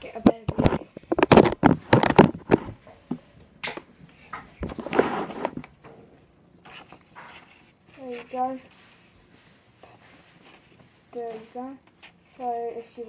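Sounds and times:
paper rustling and crackling: 0.1 - 2.8, 4.6 - 5.7
knocks of handling paper: 0.1 - 3.8, 4.4 - 5.9.

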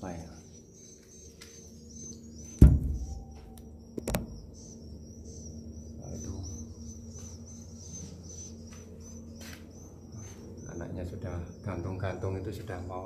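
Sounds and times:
low steady hum: 0.0 - 13.0
sharp knocks: 2.6 - 3.4.

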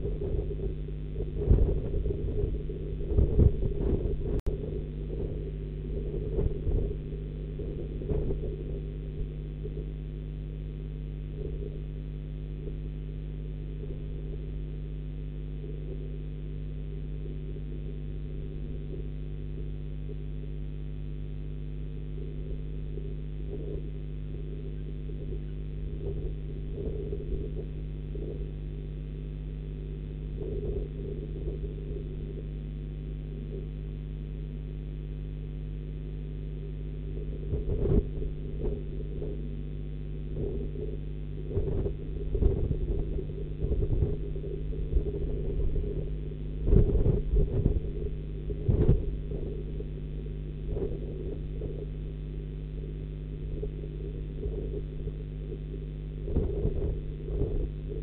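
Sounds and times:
soft low rumbles and bumps: 0.0 - 10.0, 22.2 - 28.8, 37.0 - 58.0
microphone electrical hum: 0.0 - 58.0.

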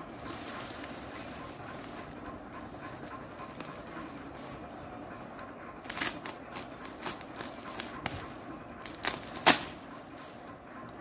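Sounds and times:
bubble wrap crinkling: 0.0 - 2.2, 5.8 - 10.5
bubble wrap snapping: 5.8 - 10.4.

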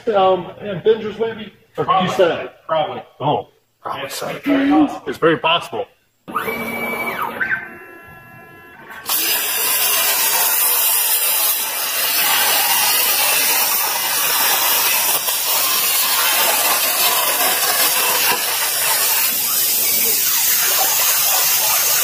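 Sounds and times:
plasma cutter hiss: 8.9 - 22.0.

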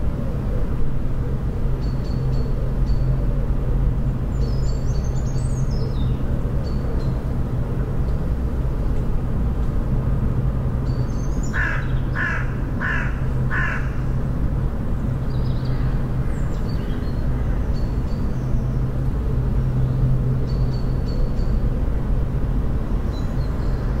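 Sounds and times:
steady low hum: 0.0 - 24.0
bird harsh calls: 11.4 - 14.0.

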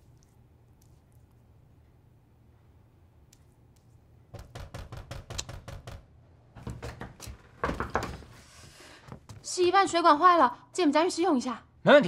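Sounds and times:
rapid knocking on a door: 4.4 - 8.3.

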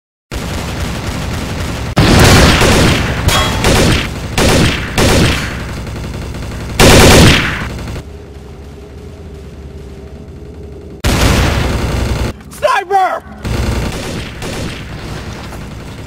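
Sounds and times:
automatic gunfire bursts: 0.4 - 8.0, 13.4 - 16.0.

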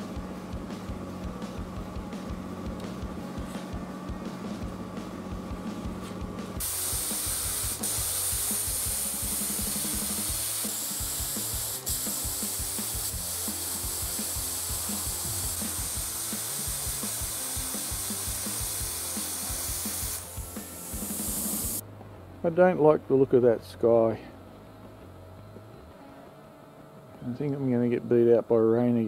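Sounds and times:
plasma cutter hissing: 6.6 - 21.8.

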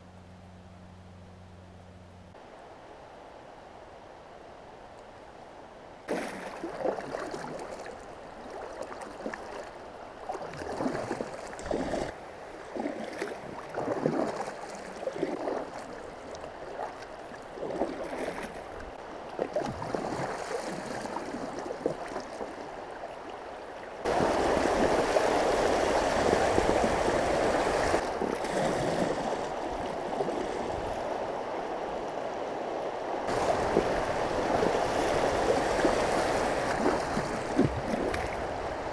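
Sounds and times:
paddle strokes splashing: 6.1 - 31.4, 33.1 - 38.9
water gurgling around kayak: 6.1 - 31.4, 33.2 - 38.9
river water rushing over riffle: 6.1 - 38.9.

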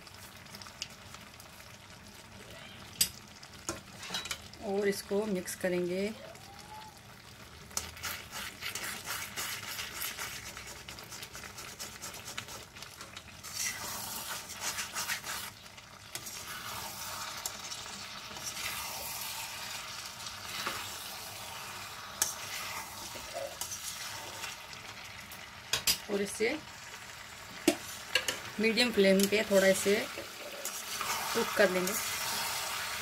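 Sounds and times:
vegetables sizzling in oil: 0.0 - 33.0
spatula scraping a pan: 7.9 - 24.6, 29.3 - 33.0.

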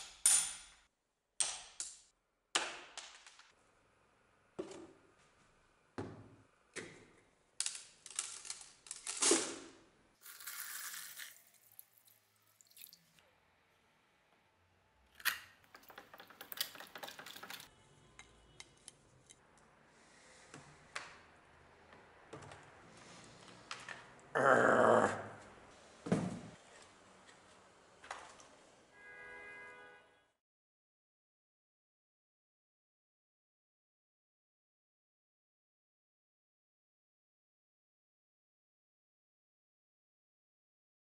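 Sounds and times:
plastic bottle crinkling: 10.2 - 13.0
water pouring: 10.2 - 13.2
metal electrodes rattling: 15.7 - 17.7.

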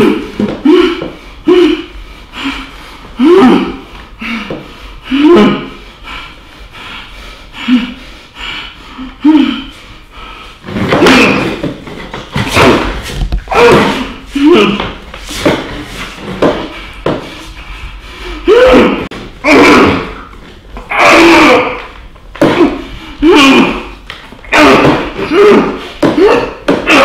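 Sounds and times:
man groaning muffled: 0.0 - 5.8, 9.0 - 9.7, 10.9 - 11.6, 12.6 - 15.0, 18.2 - 20.3, 20.9 - 27.0.

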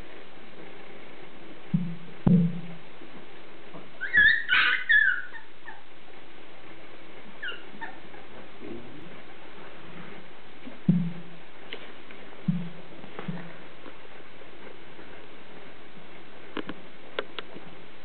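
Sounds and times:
steady background hiss: 0.0 - 18.0
puppies yelping and whimpering: 4.0 - 5.9, 7.4 - 8.0.

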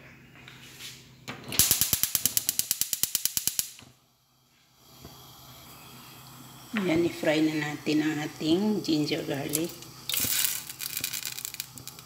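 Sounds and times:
gas stove spark igniter clicking: 1.5 - 3.9
faint gas hiss: 4.1 - 10.9.

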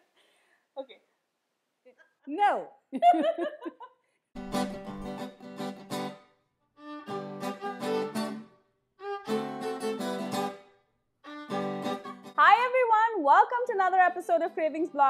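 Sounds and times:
fiddle and guitar music: 4.4 - 15.0.

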